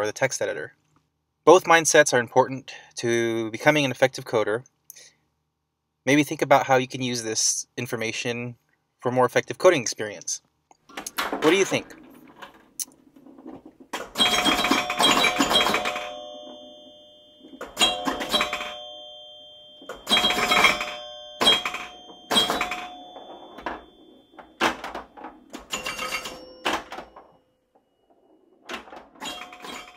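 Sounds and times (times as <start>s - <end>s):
bell-like dings: 14.2s - 29.9s.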